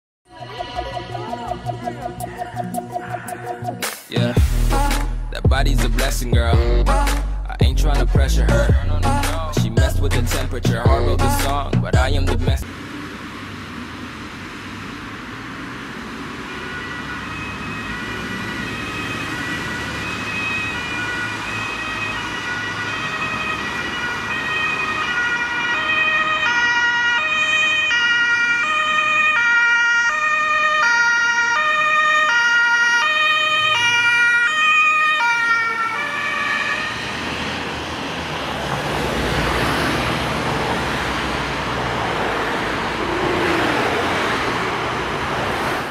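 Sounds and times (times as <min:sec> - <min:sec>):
two-tone emergency siren: 0:00.3 - 0:03.8, 0:15.9 - 0:41.4
road traffic noise: 0:00.3 - 0:45.9.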